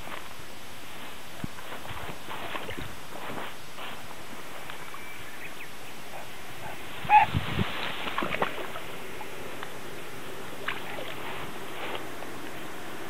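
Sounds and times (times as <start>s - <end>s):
grass rustling and swishing: 0.0s - 5.0s, 6.4s - 13.0s
trampling through grass: 0.0s - 5.2s, 6.6s - 8.9s, 10.6s - 12.7s.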